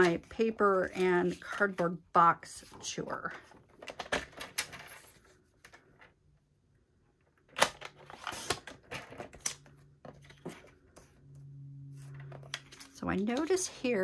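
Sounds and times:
paper sliding and rustling: 8.1 - 8.8
faint low hum: 9.0 - 14.0.

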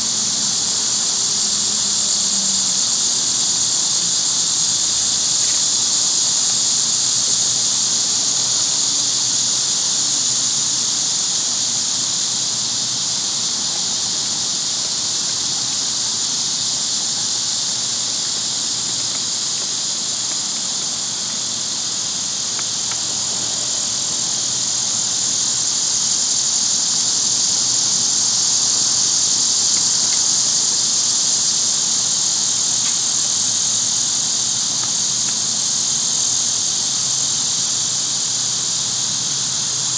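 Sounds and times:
cicadas hissing: 0.0 - 39.9.

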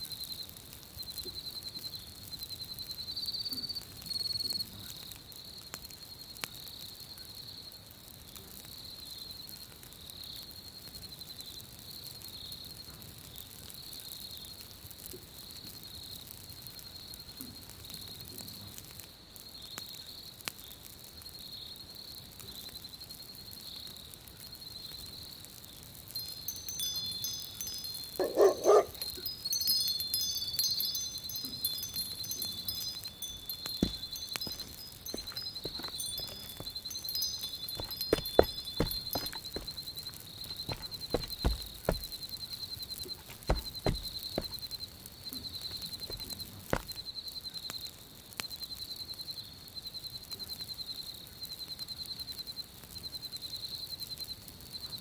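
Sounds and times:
wind chimes tinkling: 26.1 - 42.3.

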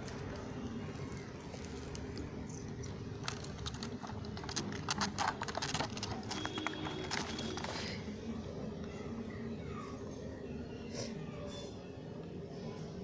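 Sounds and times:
claws scratching wood: 0.9 - 8.0.

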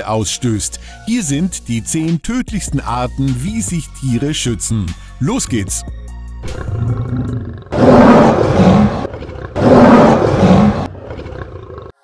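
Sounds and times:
lion roaring: 6.4 - 12.0.

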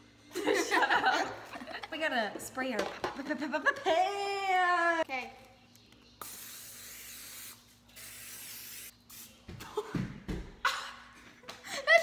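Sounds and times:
aerosol cooking spray hissing: 6.2 - 9.4.

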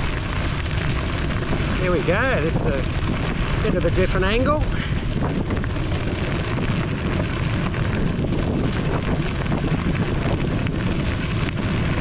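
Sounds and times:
bicycle tyres rolling: 0.0 - 12.0
wind buffeting microphone: 0.0 - 12.0.

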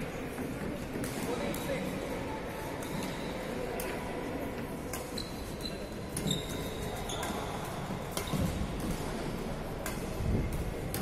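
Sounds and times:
badminton racket hitting shuttlecock: 4.9 - 11.0
shoes squeaking on wooden floor: 5.2 - 7.3.

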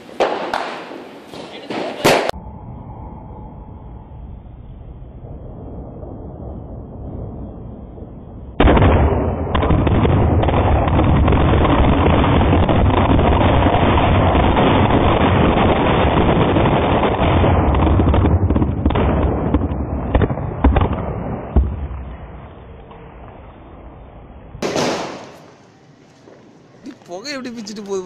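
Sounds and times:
firecrackers crackling: 0.0 - 2.4, 8.5 - 28.0.

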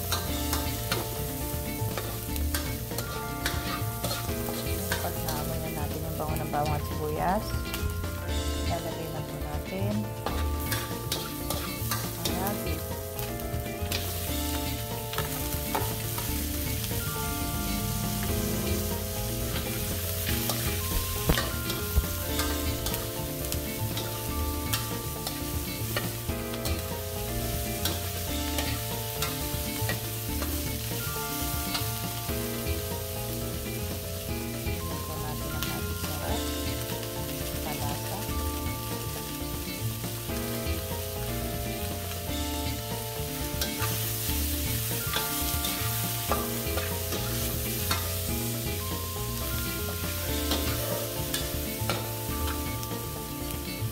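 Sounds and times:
meat sizzling in hot oil: 0.0 - 53.9.

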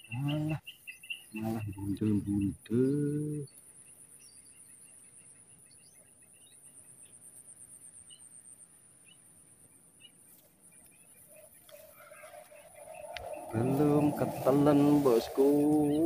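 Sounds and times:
faint bird chirps: 0.0 - 16.0
high-pitched insect trill: 11.2 - 16.0.

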